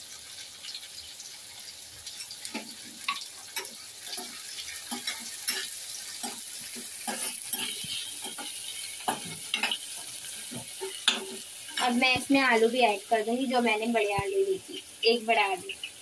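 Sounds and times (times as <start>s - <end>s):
vegetables sizzling in hot oil: 0.0s - 16.0s
spoon scraping a pan: 2.1s - 12.7s.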